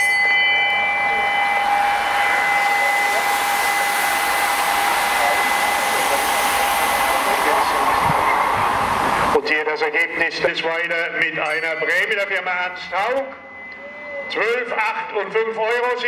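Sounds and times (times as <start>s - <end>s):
bell ringing: 0.0s - 7.3s, 10.4s - 16.0s
bicycles passing with tyre hiss: 1.5s - 9.4s.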